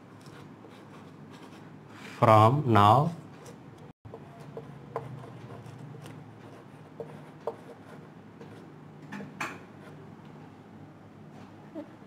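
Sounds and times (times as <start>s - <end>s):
chalk scratching on blackboard: 0.2s - 1.8s, 3.4s - 8.7s.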